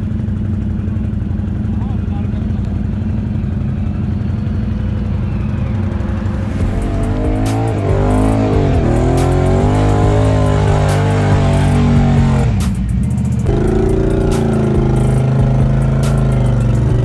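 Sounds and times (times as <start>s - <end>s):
atv engine running: 0.0s - 17.0s
quad engine revving: 1.7s - 17.0s
music with guitar and bass: 6.4s - 17.0s.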